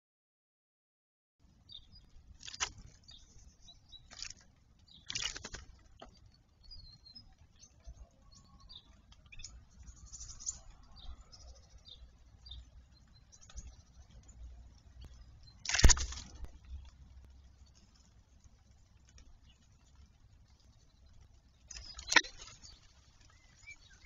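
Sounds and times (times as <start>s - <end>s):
faint high bird chirps: 1.6s - 14.4s, 20.6s - 24.0s
bird splashing and wing-fluttering: 2.4s - 6.3s, 15.5s - 24.0s.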